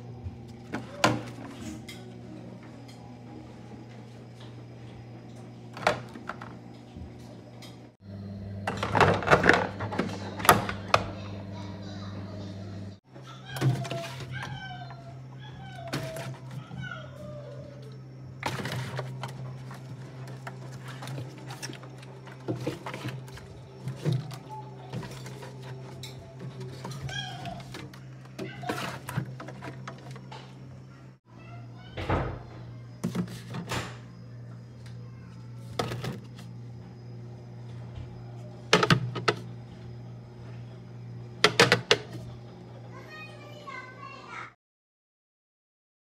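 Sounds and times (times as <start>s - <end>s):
steady low hum: 0.0s - 13.0s
containers clacking on glass shelf: 41.4s - 42.2s.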